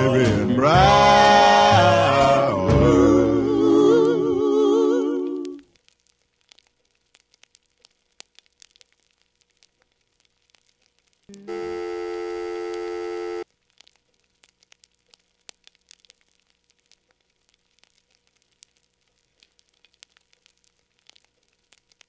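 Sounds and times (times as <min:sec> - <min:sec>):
faint crackling clicks: 0:05.2 - 0:11.4, 0:13.4 - 0:22.0
loud steady electronic tone: 0:11.3 - 0:13.4.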